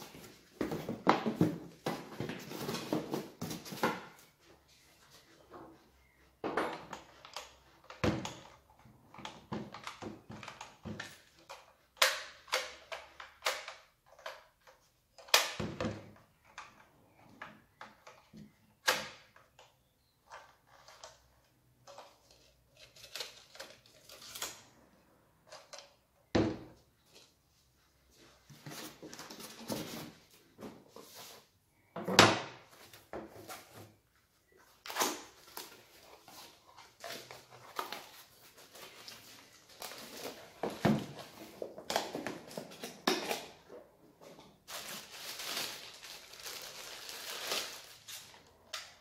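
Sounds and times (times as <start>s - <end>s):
handling knocks and rustles: 0.0s - 11.8s, 25.5s - 34.0s, 34.6s - 49.0s.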